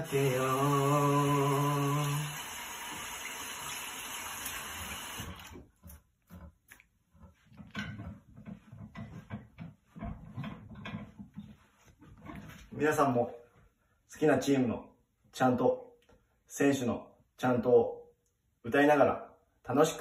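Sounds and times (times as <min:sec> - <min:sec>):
tap water running into basin: 0:00.0 - 0:05.9.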